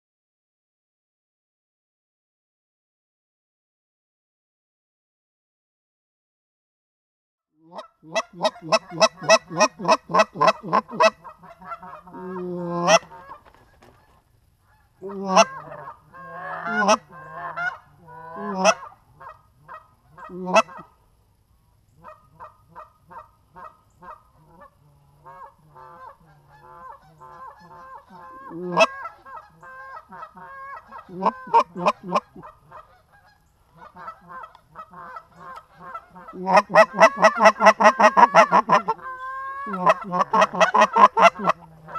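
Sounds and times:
geese honking and clucking: 0:07.6 - 0:21.0, 0:22.0 - 0:41.9.

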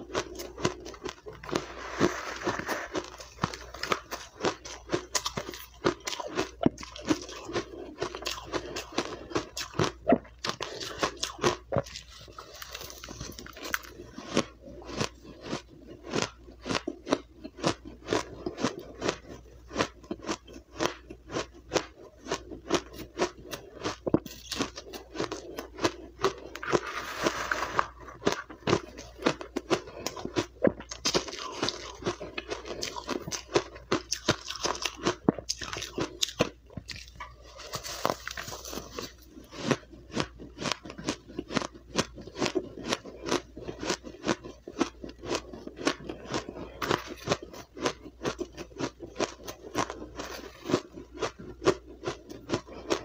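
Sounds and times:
ice being crunched: 0:37.6 - 0:39.1.

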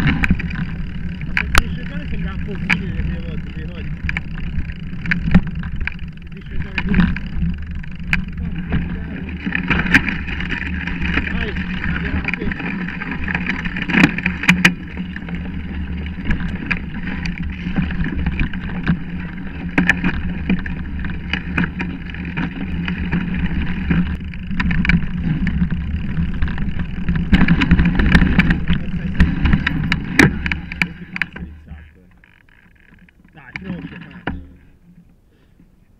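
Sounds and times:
bike rattles and knocks: 0:00.0 - 0:35.2
bike tyre rumble: 0:00.0 - 0:35.9.

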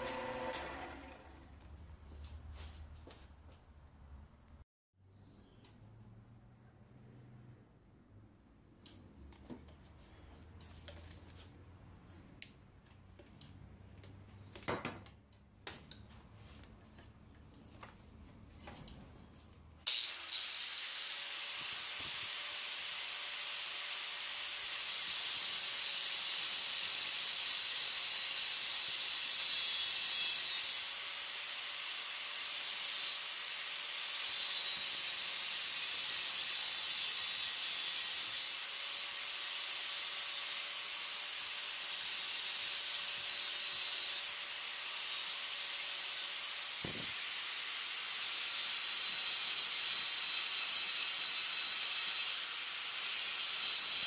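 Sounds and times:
angle grinder motor whine: 0:00.0 - 0:01.5.

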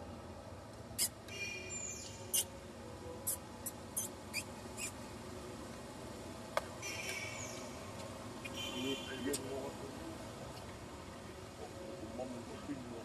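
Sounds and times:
baby monkey squealing: 0:03.3 - 0:05.0.

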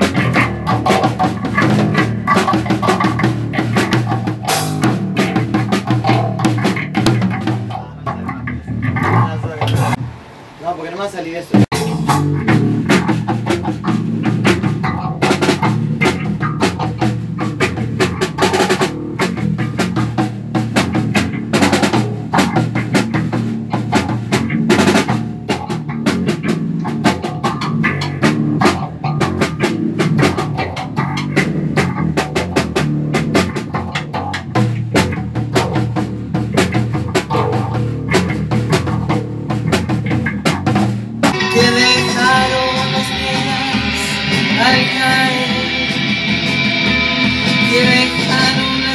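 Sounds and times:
electric bass line: 0:00.0 - 0:10.1, 0:11.6 - 0:48.9
fast drum kit playing: 0:00.0 - 0:10.1, 0:11.1 - 0:48.9.

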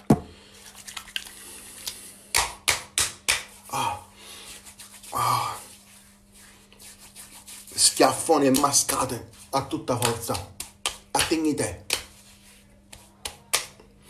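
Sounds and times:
hands rubbing together: 0:00.6 - 0:13.8
hands slapping face: 0:01.8 - 0:03.6, 0:08.1 - 0:13.8
person grunting: 0:03.7 - 0:04.1.

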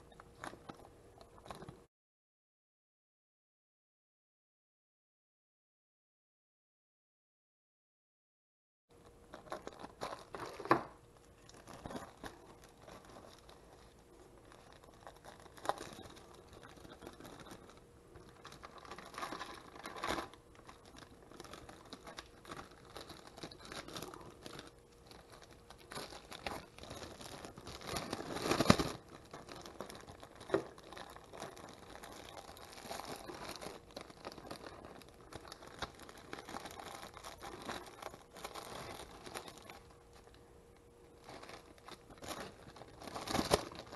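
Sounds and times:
plastic bags crinkling: 0:09.0 - 0:40.4, 0:41.1 - 0:43.9.

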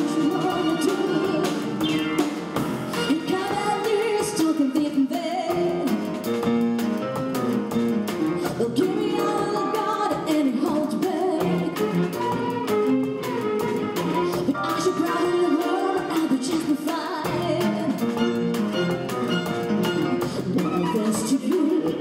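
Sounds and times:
woman singing jazz: 0:00.0 - 0:01.8, 0:02.9 - 0:06.4, 0:08.4 - 0:18.5, 0:20.2 - 0:22.0
string ensemble: 0:00.0 - 0:04.3, 0:17.3 - 0:22.0
drums light beat: 0:00.0 - 0:22.0.

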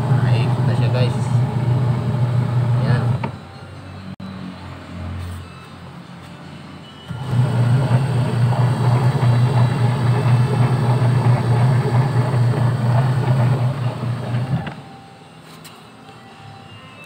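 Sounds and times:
washing machine motor humming: 0:00.0 - 0:03.4, 0:07.1 - 0:14.9.

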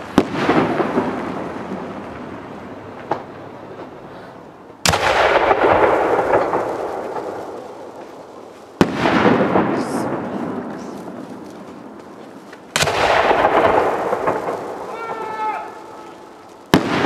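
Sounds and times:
firework shells bursting: 0:04.8 - 0:17.0
bang echo: 0:12.8 - 0:17.0.

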